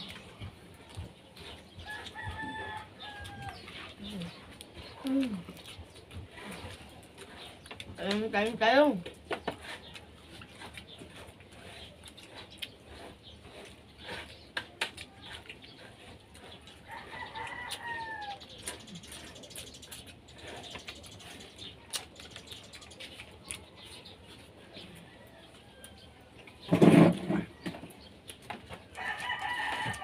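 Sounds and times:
rooster crowing: 1.9 - 3.6, 16.9 - 18.4, 29.0 - 30.0.

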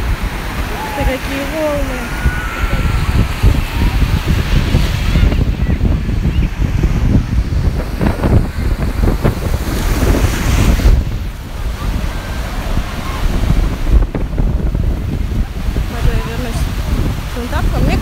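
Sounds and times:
sea surf breaking on beach: 0.0 - 18.0
wind buffeting microphone: 0.0 - 18.0.

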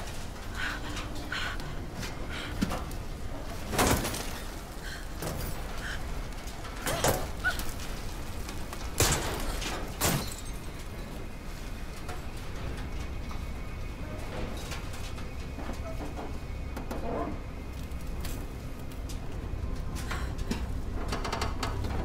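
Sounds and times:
sharp metal cracks and thuds: 5.2 - 10.9.

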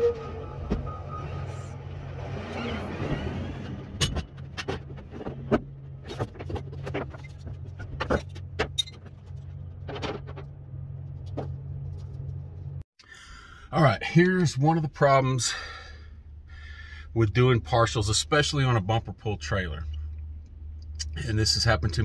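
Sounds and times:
large engine droning: 0.0 - 6.0
metallic knocks and clanks: 3.9 - 12.2.

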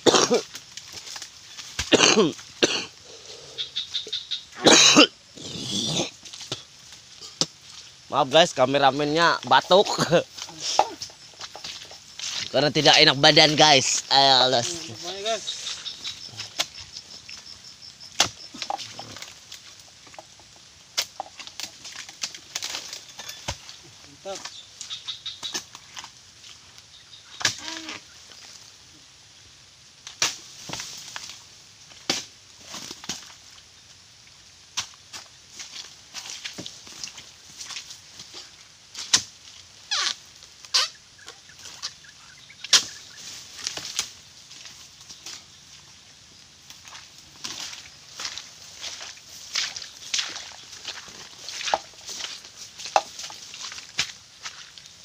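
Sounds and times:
rustling fronds: 0.0 - 55.0
chisel chopping palm fronds: 18.2 - 19.0, 30.1 - 31.0, 32.0 - 33.3, 38.9 - 39.4, 42.6 - 44.1
blade chopping palm stalks: 18.2 - 19.4, 21.0 - 23.8, 27.4 - 28.0, 30.1 - 31.3, 32.0 - 33.3, 38.2 - 40.9, 42.6 - 44.2, 52.8 - 54.2.

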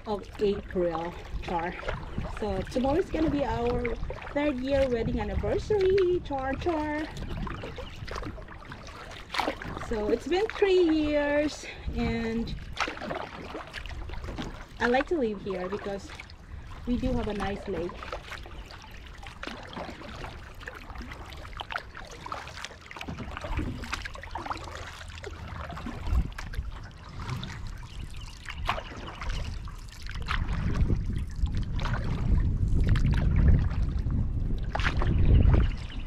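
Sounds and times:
paddle blades dipping and dripping: 0.0 - 36.0
water lapping against plastic hull: 0.0 - 36.0
low rumble: 25.4 - 36.0.

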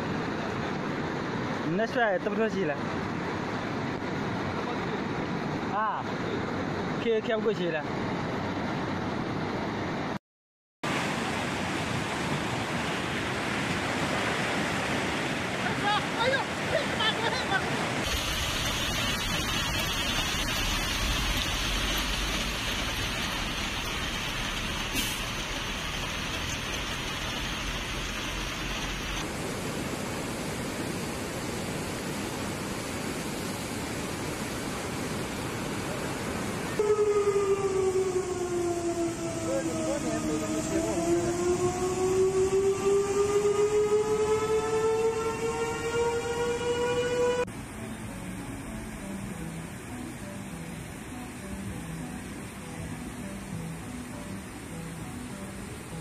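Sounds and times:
floodwater rushing: 10.9 - 56.0
torrent pouring: 18.0 - 29.2
long falling tone: 36.8 - 47.5.

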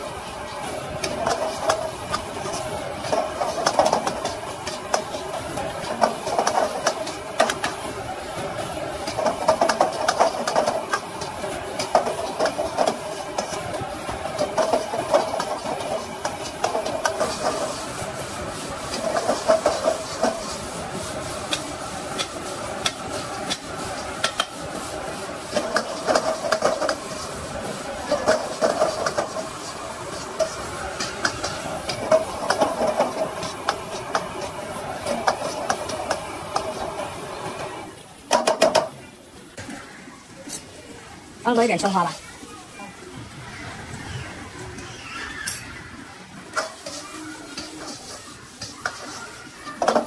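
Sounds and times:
roaring gas burner: 0.0 - 50.0
stir-frying in a wok: 0.0 - 50.0
metal spatula scraping a wok: 14.3 - 23.3, 24.3 - 36.8, 46.6 - 50.0.

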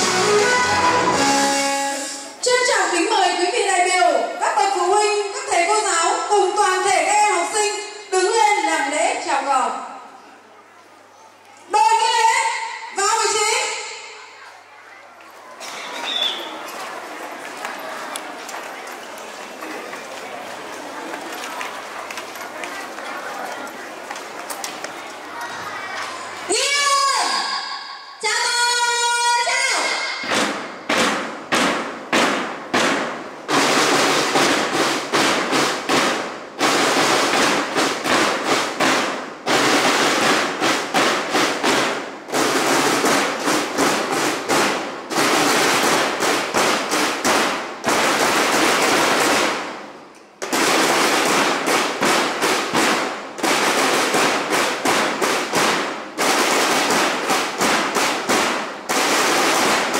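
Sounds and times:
firecrackers banging: 0.0 - 3.2, 15.4 - 26.7, 30.2 - 59.9.

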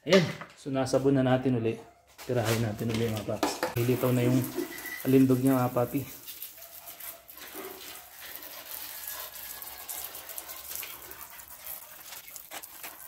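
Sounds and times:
water spraying: 3.8 - 13.0.

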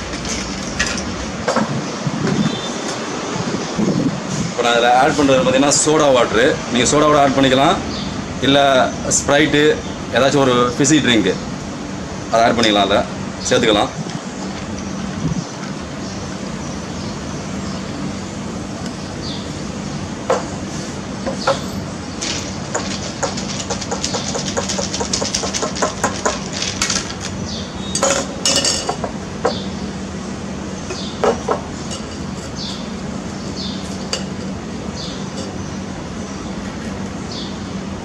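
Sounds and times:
spoon stirring ice in a glass: 22.2 - 27.3.

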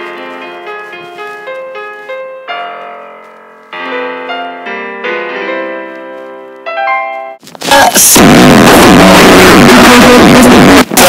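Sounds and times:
slow piano-like keyboard melody: 0.0 - 7.4.

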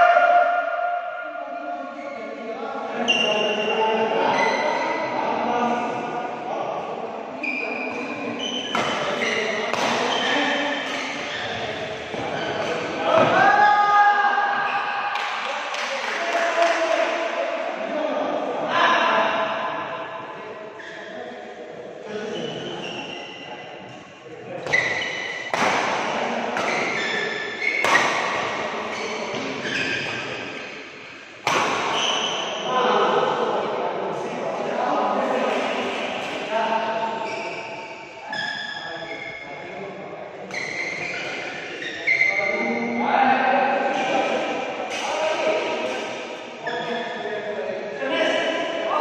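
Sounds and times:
shoes squeaking on court mat: 7.4 - 12.9, 20.8 - 21.2, 24.6 - 25.6, 26.6 - 30.6, 31.8 - 32.6, 37.1 - 39.5, 40.5 - 42.9, 46.6 - 47.2
rackets striking shuttlecock: 24.6 - 30.8, 31.4 - 32.4.

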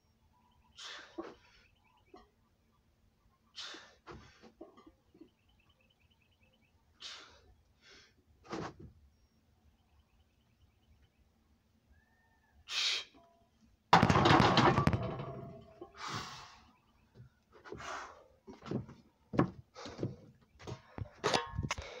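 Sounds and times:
knocks and rustles: 14.0 - 15.9.

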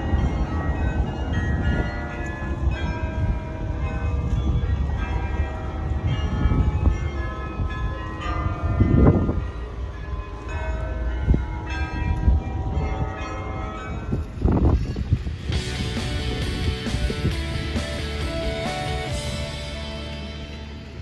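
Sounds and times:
carillon bells ringing: 0.0 - 21.0
steady low rumble: 14.1 - 21.0
noisy surge: 15.4 - 21.0.

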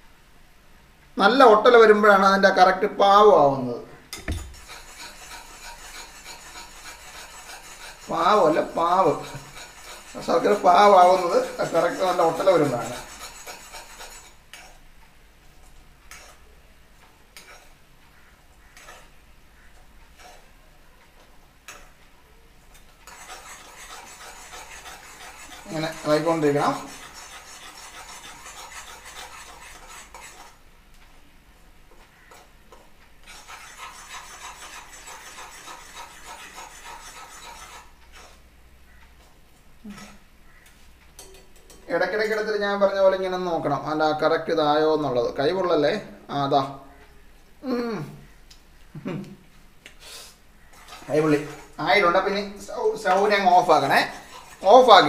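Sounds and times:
metal spoon scraping a pan: 4.1 - 14.8, 15.6 - 16.5, 17.3 - 22.0, 22.7 - 30.6, 31.9 - 39.0, 39.9 - 42.9, 50.6 - 55.0.

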